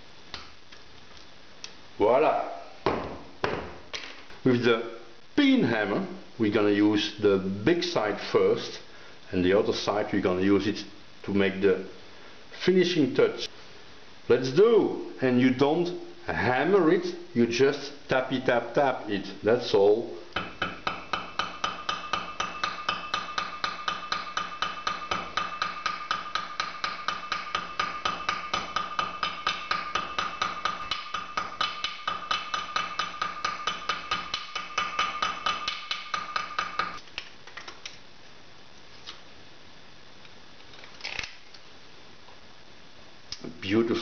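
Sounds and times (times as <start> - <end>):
hammer tapping on metal: 20.4 - 37.0.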